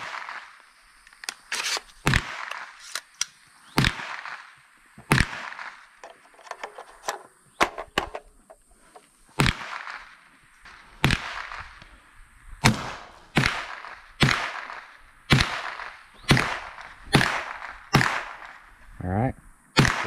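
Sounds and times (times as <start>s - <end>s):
gunshots with echo: 0.0s - 0.6s, 3.8s - 4.5s, 5.1s - 5.9s, 10.8s - 11.8s, 12.6s - 18.6s, 19.8s - 20.0s.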